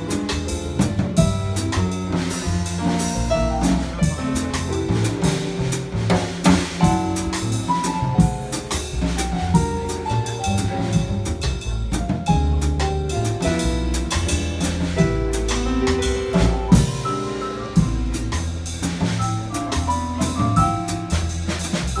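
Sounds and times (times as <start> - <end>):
drum kit cymbal and drum strikes: 0.0 - 22.0
piano chords: 0.0 - 22.0
walking upright bass: 0.0 - 22.0.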